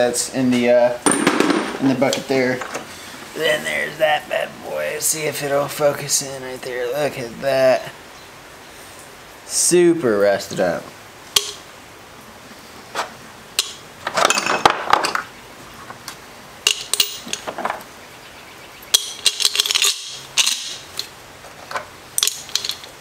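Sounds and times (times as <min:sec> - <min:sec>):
metal sockets clinking in glass jar: 0:16.6 - 0:17.5, 0:18.9 - 0:21.1, 0:22.2 - 0:23.0.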